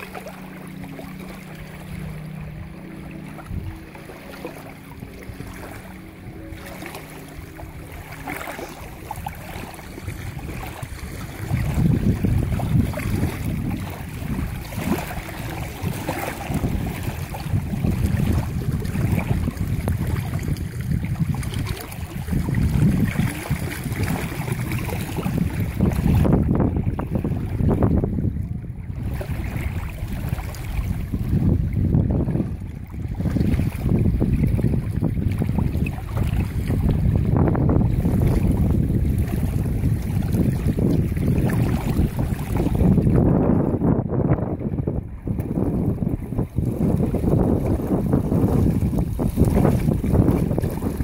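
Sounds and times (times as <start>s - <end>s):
small choppy waves: 0.0s - 51.0s
wind buffeting microphone: 0.0s - 51.0s.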